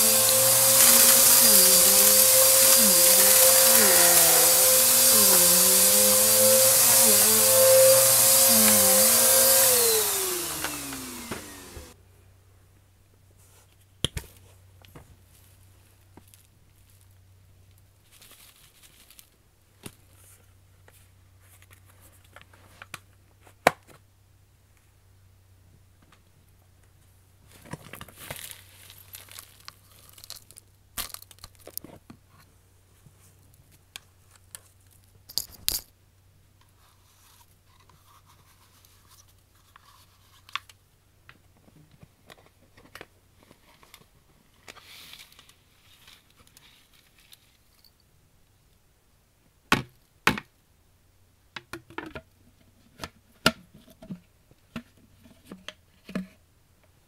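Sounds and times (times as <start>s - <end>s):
crinkling and tearing: 18.0s - 20.3s, 27.5s - 32.0s.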